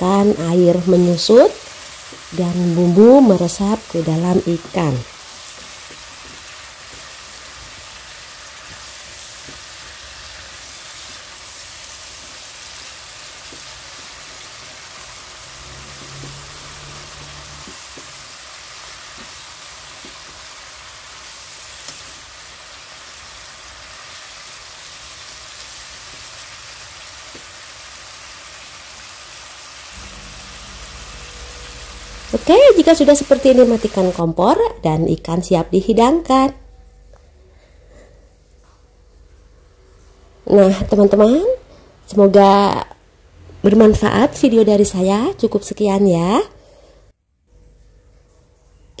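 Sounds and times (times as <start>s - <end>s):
fish sizzling in a frying pan: 0.0s - 34.2s.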